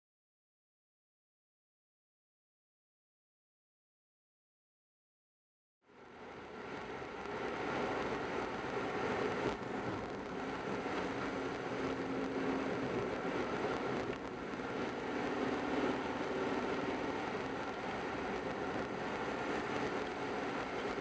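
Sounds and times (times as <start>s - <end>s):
car engine hum: 5.9s - 21.0s
tyre and road noise: 6.0s - 21.0s.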